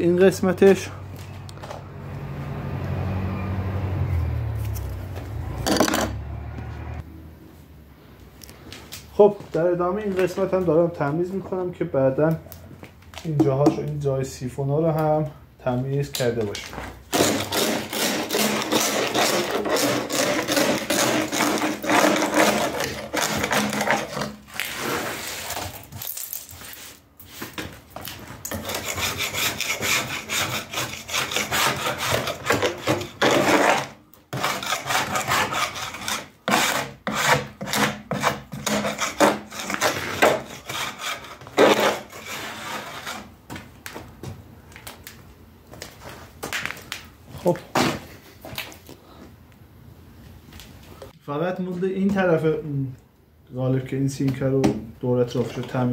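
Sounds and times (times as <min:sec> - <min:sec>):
hand scraper scraping: 0:16.8 - 0:26.0, 0:26.6 - 0:43.4.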